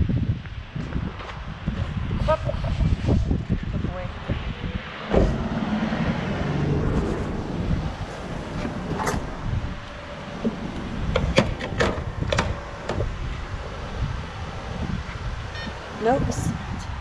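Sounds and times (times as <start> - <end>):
low rumble of vehicles: 0.0 - 17.0
gas pump nozzle clacking: 10.4 - 13.2.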